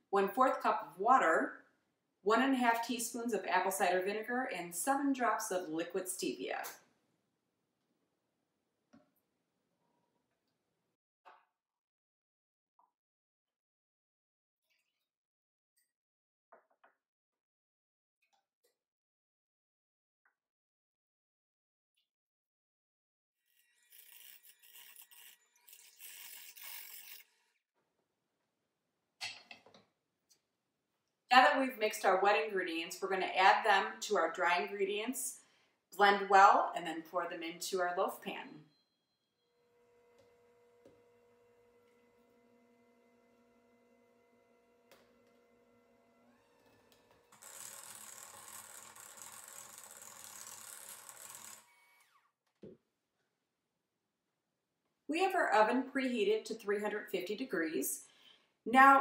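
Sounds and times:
electric hand mixer motor: 23.8s - 27.5s, 39.6s - 52.2s.

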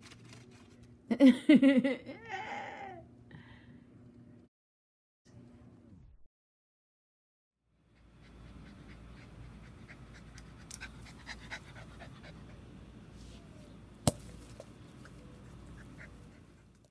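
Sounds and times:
dog panting: 7.9s - 12.7s, 15.0s - 16.8s.

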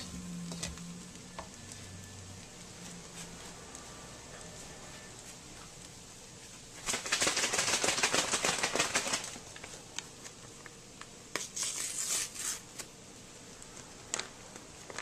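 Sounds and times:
spatulas scraping metal wok: 0.0s - 1.0s, 11.4s - 12.8s
rice grains rattling: 6.8s - 9.5s.

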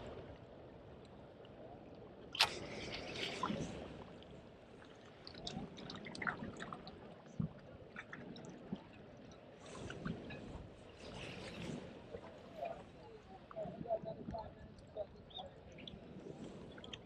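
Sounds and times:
waves lapping against rocks: 2.3s - 13.0s.

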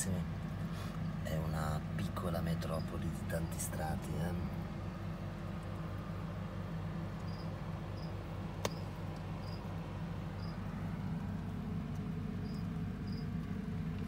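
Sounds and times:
steady low hum: 0.0s - 14.0s
sharp click: 8.6s - 8.8s.

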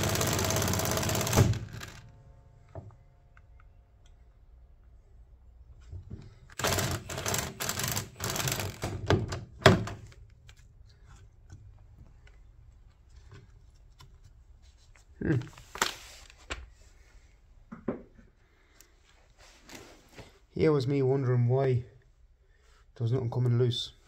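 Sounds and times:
impact wrench rattling: 0.0s - 2.1s, 6.5s - 9.3s.

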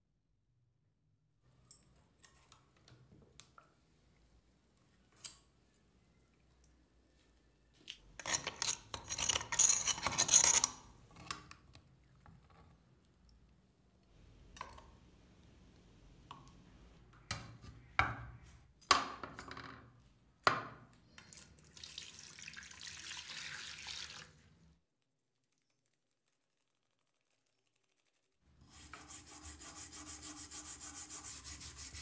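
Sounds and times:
running water pouring: 21.2s - 24.6s.

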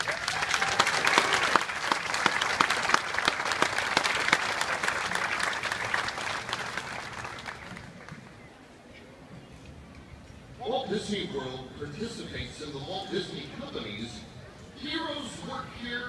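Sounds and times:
crowd applauding: 0.0s - 8.2s.

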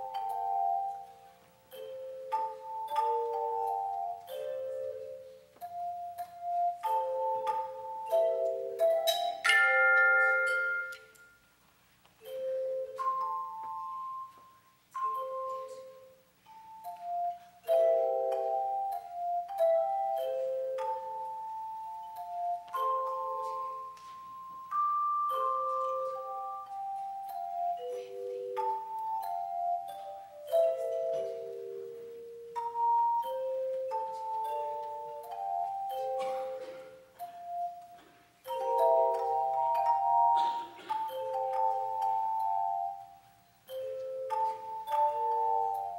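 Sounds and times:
handbell chords ringing: 5.8s - 11.4s, 17.6s - 31.8s
handbell choir ringing: 5.8s - 11.5s.

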